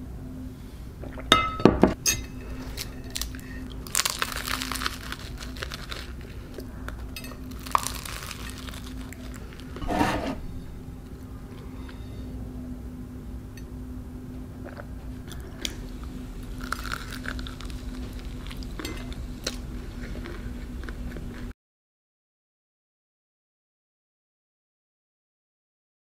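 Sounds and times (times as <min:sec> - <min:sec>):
steady low hum: 0:00.0 - 0:21.5
crunching pastry: 0:02.4 - 0:10.7, 0:14.6 - 0:21.5.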